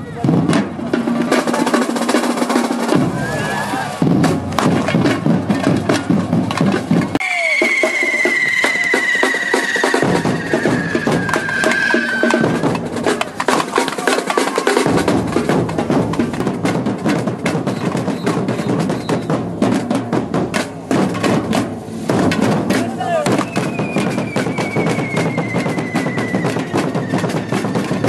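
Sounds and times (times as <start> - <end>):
percussion drumming: 0.0 - 28.0
high whistle sliding down: 7.2 - 12.6, 23.5 - 27.6.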